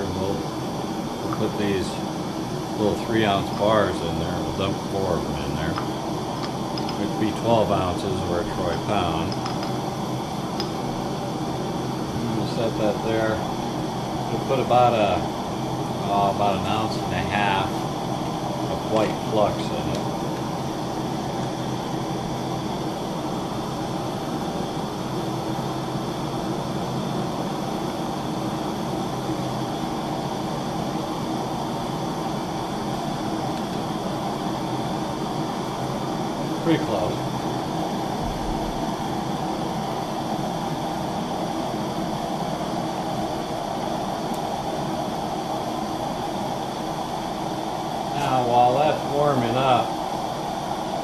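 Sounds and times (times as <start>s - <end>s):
gas torches rushing: 0.0s - 51.0s.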